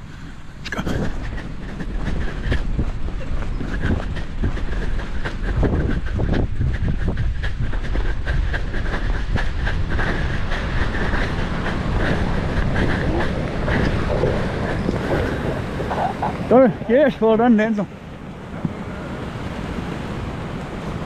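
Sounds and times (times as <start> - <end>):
wind rumbling on microphone: 0.0 - 21.0
footfalls running on sand: 0.7 - 21.0
seals bleating: 12.8 - 16.6.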